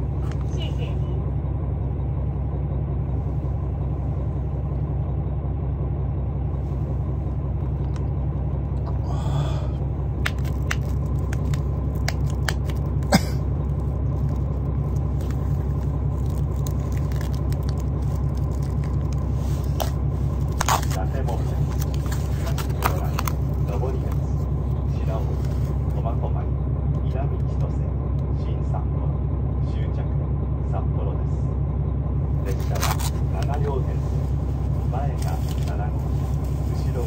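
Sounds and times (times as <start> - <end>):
train carriage rumble: 0.0 - 37.0
plastic film crinkling: 10.3 - 13.0, 14.1 - 23.7, 32.5 - 33.5.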